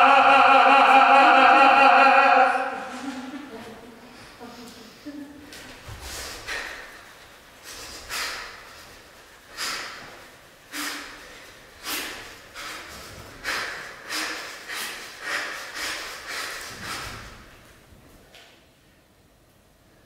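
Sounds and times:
sharp hissing exhalations: 0:06.0 - 0:07.0, 0:07.6 - 0:08.9, 0:09.5 - 0:17.5.

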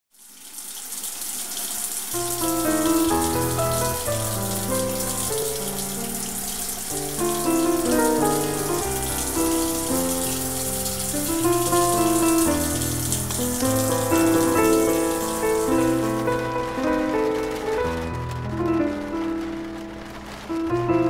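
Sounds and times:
rushing water hiss: 0:00.1 - 0:21.0
instrumental music: 0:02.1 - 0:21.0.

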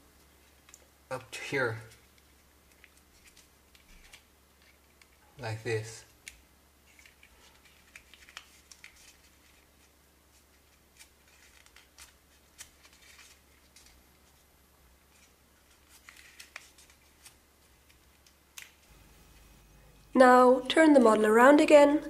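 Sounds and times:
paper crinkling: 0:01.9 - 0:05.2, 0:06.2 - 0:19.9.

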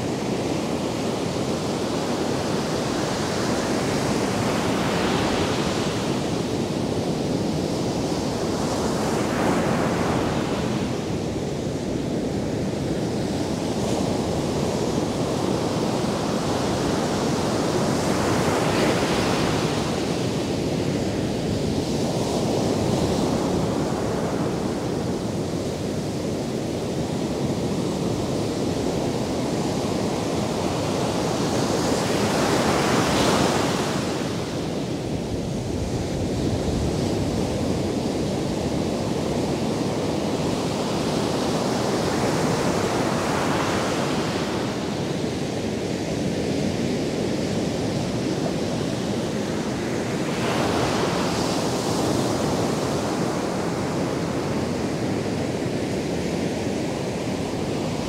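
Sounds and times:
waves breaking on beach: 0:00.0 - 0:58.0.

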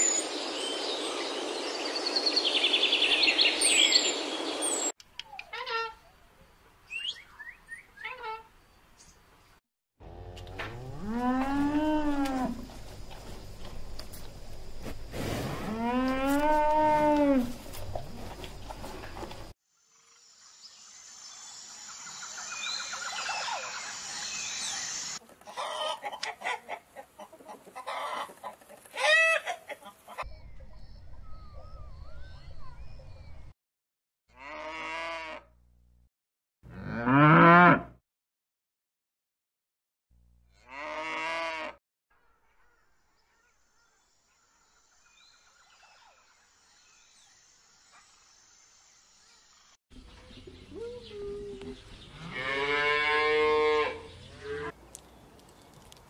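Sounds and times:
birds chirping and trilling: 0:00.0 - 0:09.6, 0:20.8 - 0:25.8, 0:29.7 - 0:33.5, 0:42.2 - 0:55.9
cow mooing: 0:10.0 - 0:12.6, 0:34.4 - 0:35.5, 0:36.7 - 0:38.0, 0:40.6 - 0:41.8, 0:52.2 - 0:54.8
chickens clucking: 0:25.2 - 0:30.3.

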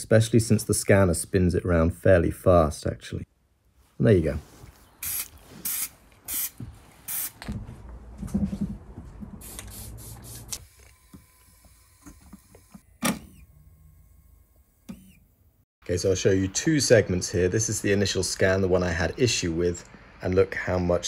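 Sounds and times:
spray can hissing: 0:05.0 - 0:07.4, 0:09.4 - 0:10.6.

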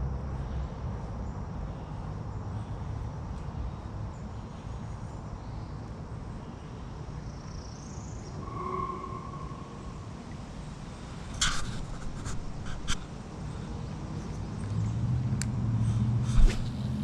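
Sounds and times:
faint high chirps: 0:08.1 - 0:10.5.

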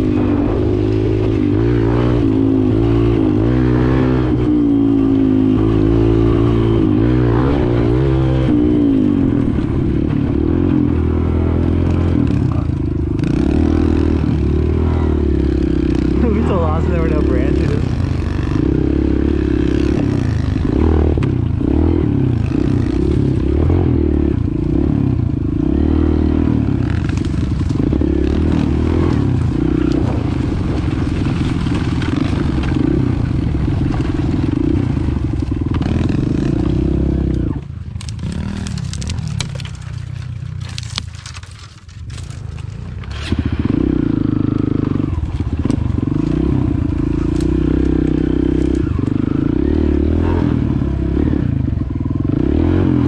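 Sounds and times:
branches crackling and snapping: 0:00.0 - 0:50.0
dirt bike engine running: 0:00.0 - 0:53.0
twigs scraping against bike: 0:11.6 - 0:24.9, 0:26.4 - 0:49.4.

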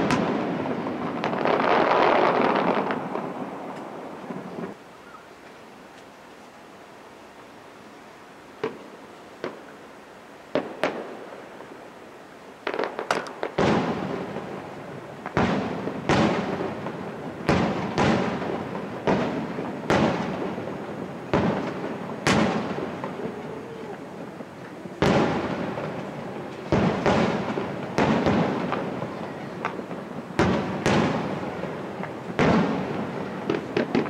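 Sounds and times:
firework shells bursting: 0:12.6 - 0:14.6, 0:15.2 - 0:34.0.

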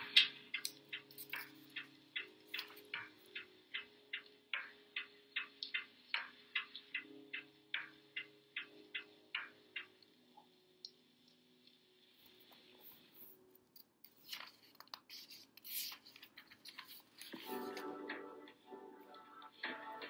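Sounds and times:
light regular ticking: 0:00.0 - 0:20.0
paper rustling as page turns: 0:14.1 - 0:18.0.

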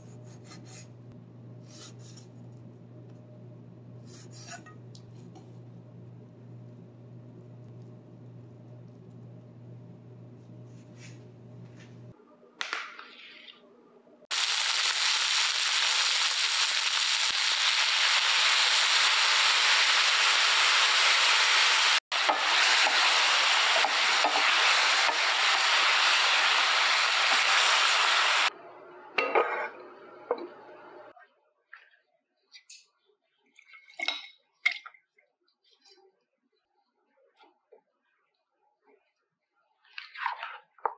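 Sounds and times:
meat sizzling in a pan: 0:14.3 - 0:28.5.

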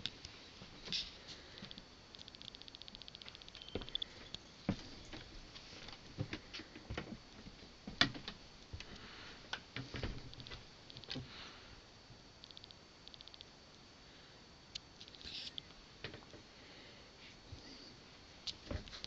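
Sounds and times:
knocks and creaks of floorboards: 0:04.7 - 0:08.4, 0:09.8 - 0:11.3, 0:18.6 - 0:19.0.

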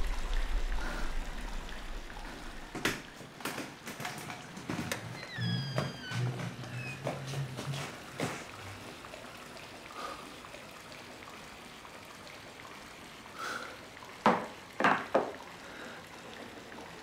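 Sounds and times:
water moving in bathtub: 0:00.0 - 0:17.0.

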